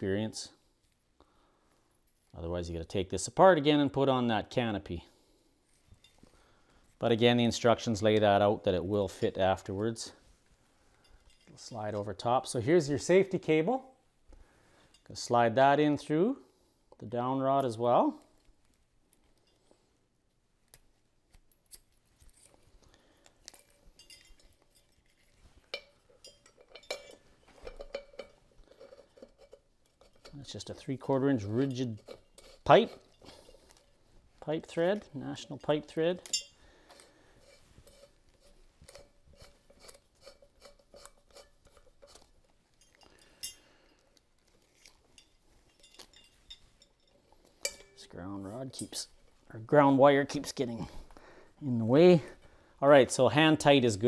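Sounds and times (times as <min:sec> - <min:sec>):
metallic clinks and clicks: 0:23.3 - 0:30.8, 0:34.8 - 0:48.1.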